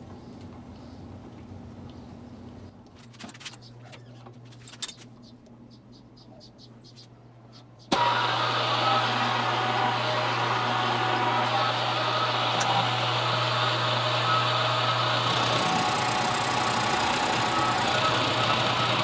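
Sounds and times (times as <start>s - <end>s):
milling machine cutting metal: 7.9s - 19.0s.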